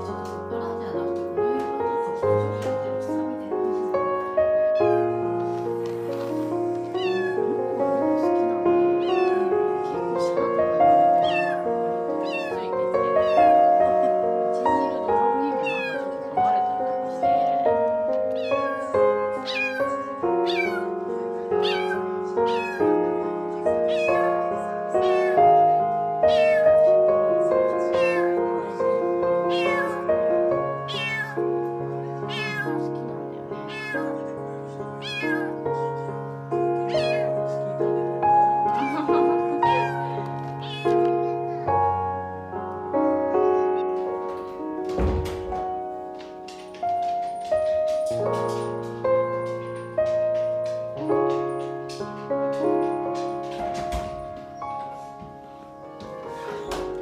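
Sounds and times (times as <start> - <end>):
kitten meowing: 6.9 - 7.6, 8.9 - 9.6, 11.1 - 13.6, 15.6 - 16.2, 18.3 - 20.9, 21.6 - 23.0, 23.9 - 24.4, 25.0 - 25.6, 26.2 - 26.8, 27.9 - 28.4, 29.5 - 30.0, 30.9 - 31.4, 32.3 - 32.8, 33.7 - 34.2, 35.0 - 35.6, 36.8 - 37.4, 38.8 - 41.1.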